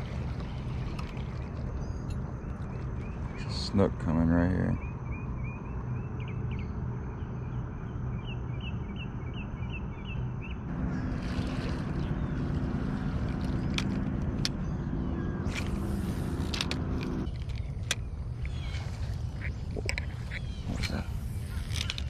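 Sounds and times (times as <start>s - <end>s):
outdoor background hum: 0.0s - 22.0s
small bird chirping: 8.2s - 22.0s.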